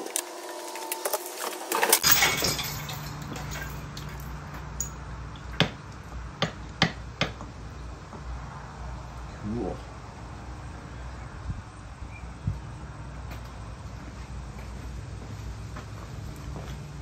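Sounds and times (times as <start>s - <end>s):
metal parts clinking: 1.8s - 5.0s.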